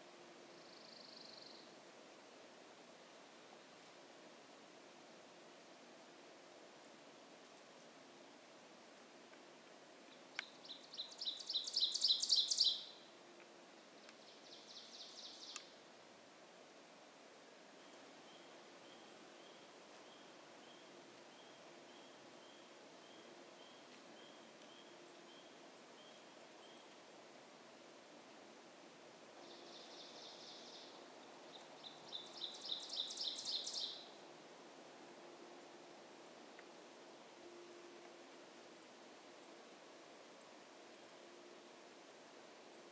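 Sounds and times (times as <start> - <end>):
songbird singing: 0.0 - 2.0, 6.0 - 16.0, 17.4 - 34.4, 35.1 - 42.9
songbird high trill: 10.6 - 13.1, 31.8 - 34.1.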